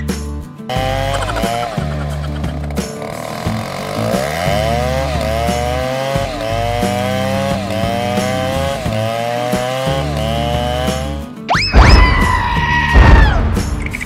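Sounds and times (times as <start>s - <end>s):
background music: 0.0s - 14.0s
cartoon chainsaw revving: 0.7s - 11.3s.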